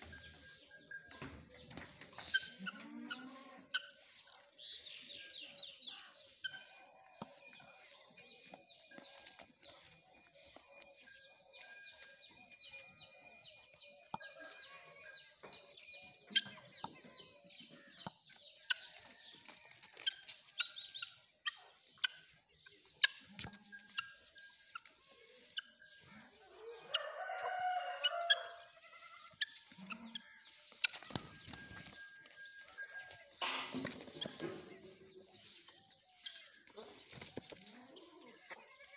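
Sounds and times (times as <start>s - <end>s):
fowl clucking and calling: 0.0s - 4.6s, 24.7s - 32.0s
small birds chirping: 0.0s - 38.9s.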